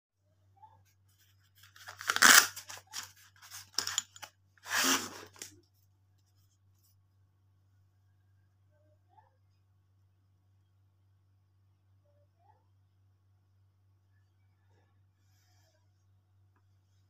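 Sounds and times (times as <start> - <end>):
plastic sheath tearing: 1.6 - 5.5
plastic clicks and rustles: 1.6 - 5.7.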